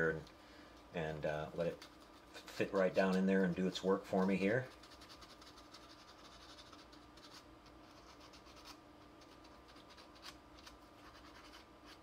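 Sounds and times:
sandpaper scratching on resin: 4.6s - 12.0s.

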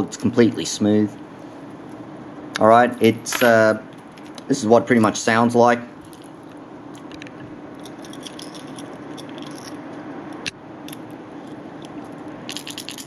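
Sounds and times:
fishing lure rattling: 7.8s - 9.8s, 12.5s - 13.0s.

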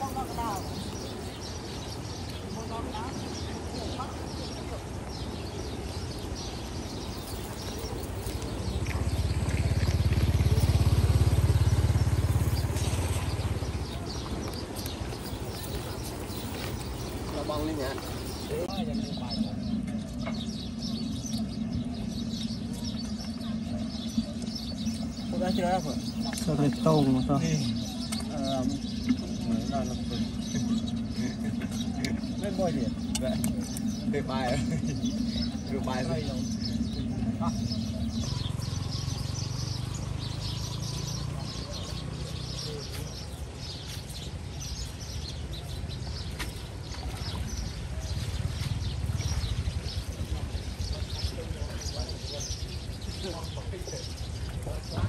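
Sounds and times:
birds chirping: 0.0s - 55.0s
steady low hum: 0.0s - 55.0s
low rumble: 5.0s - 41.9s.

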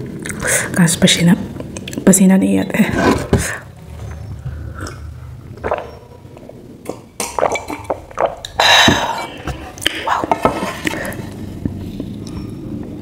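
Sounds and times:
woman gulping juice: 4.7s - 12.4s.

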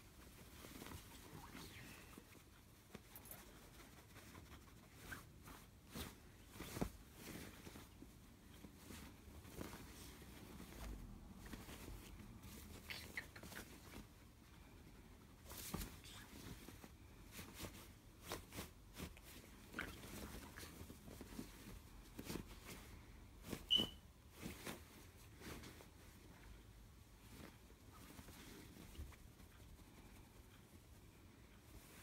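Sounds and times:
rustling and scratching on fabric: 0.0s - 32.0s
soft taps and scuffs on fabric: 0.0s - 32.0s
parrot squeak: 23.7s - 24.0s.

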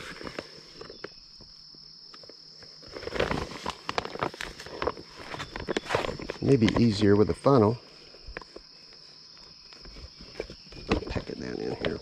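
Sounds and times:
insects chirring: 0.0s - 12.0s
bag rustling and crinkling: 2.6s - 7.0s.

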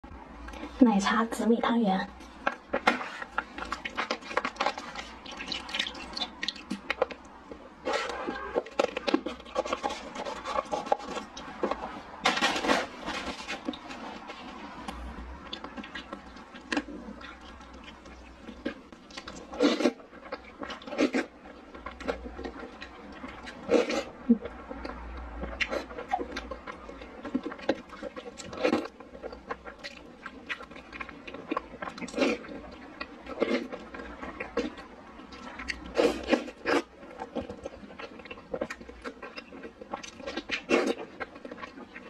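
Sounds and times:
liquid sloshing in bowl: 2.5s - 7.2s.

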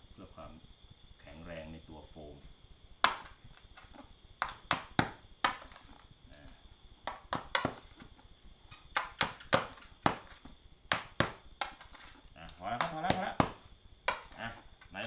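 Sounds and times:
knocks on styrofoam: 3.0s - 6.0s, 7.0s - 8.1s, 8.9s - 12.1s, 12.8s - 14.4s.

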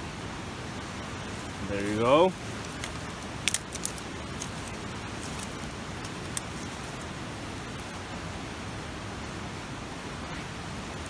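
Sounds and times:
steady hiss: 0.0s - 11.0s
fire crackle: 0.2s - 8.7s.

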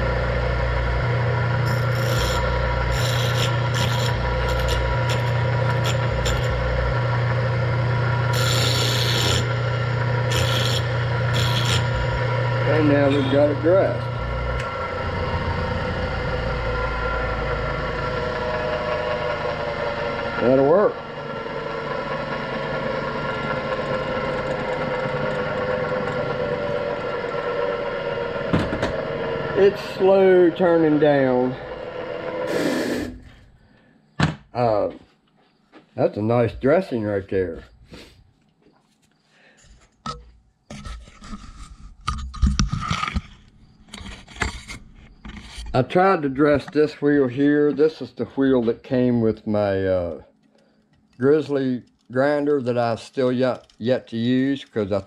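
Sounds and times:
bench grinder motor humming: 0.0s - 33.4s
wheel dresser rasping on grinding wheel: 0.0s - 33.4s.

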